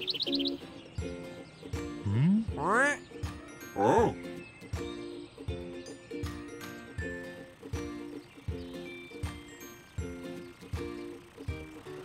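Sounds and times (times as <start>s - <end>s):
light plucked background music: 0.0s - 12.0s
cartoon character vocal sounds: 2.0s - 3.0s.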